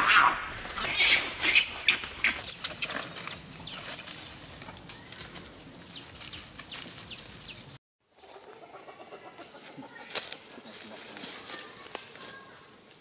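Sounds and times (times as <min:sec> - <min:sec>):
bird chirps: 0:00.9 - 0:04.4
rustling: 0:02.4 - 0:07.8
clucking fowl calls: 0:08.2 - 0:11.8.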